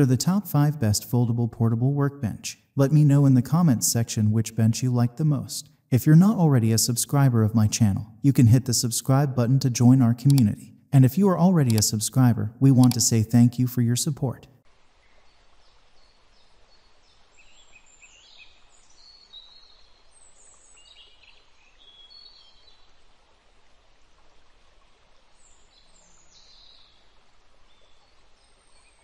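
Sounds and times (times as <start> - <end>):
steady soft hiss: 14.5 - 29.0.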